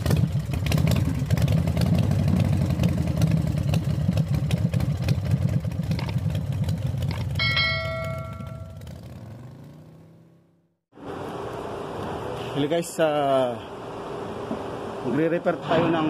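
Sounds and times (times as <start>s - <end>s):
engine running low rumble: 0.0s - 10.2s
bell-like ding: 7.4s - 8.9s.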